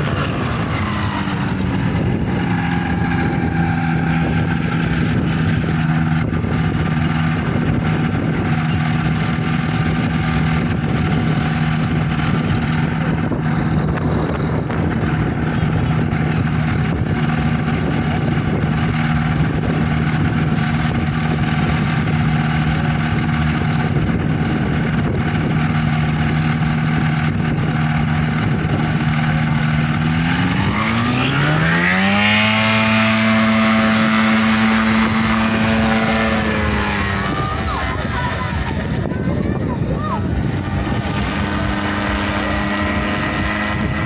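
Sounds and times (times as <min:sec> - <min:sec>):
paramotor engine and propeller: 0:00.0 - 0:44.0.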